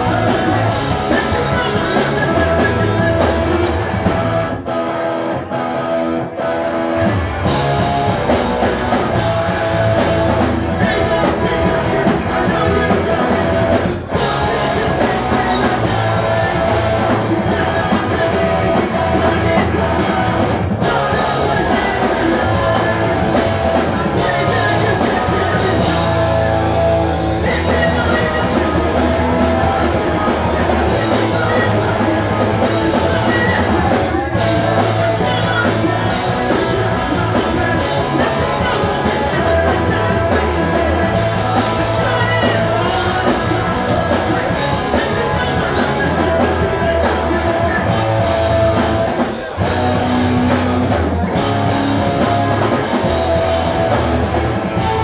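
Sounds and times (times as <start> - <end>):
person singing: 0.0 - 6.5, 7.4 - 55.0
pop-punk band playing live: 0.0 - 55.0.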